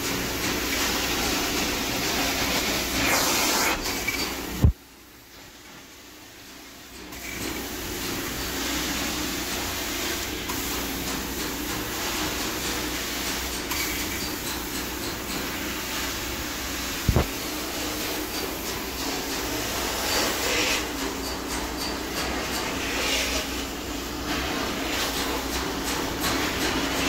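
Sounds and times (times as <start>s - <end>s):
carpet extraction machine running: 0.0s - 4.7s.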